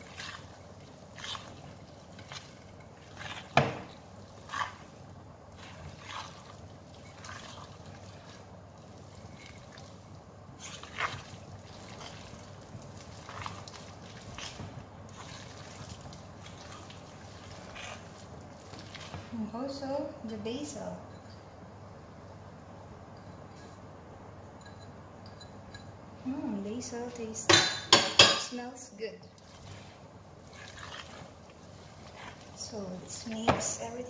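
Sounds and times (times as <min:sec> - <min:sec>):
batter stirred in glass bowl: 0:00.0 - 0:19.3, 0:29.3 - 0:34.0.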